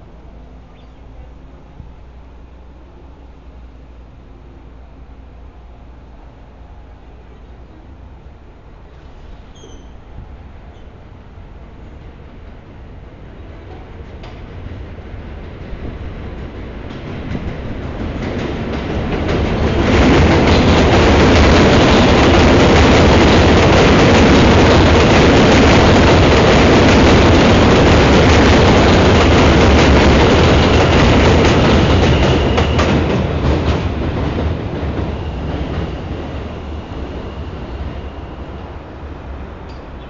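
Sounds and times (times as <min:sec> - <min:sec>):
train wheels clattering on track: 0:08.8 - 0:10.0, 0:11.9 - 0:40.0.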